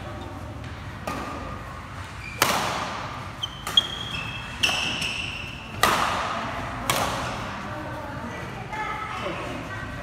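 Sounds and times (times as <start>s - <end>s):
rackets hitting shuttlecock: 0.6s - 1.6s, 2.2s - 7.5s
shoes squeaking on floor: 2.1s - 2.4s, 3.3s - 5.7s.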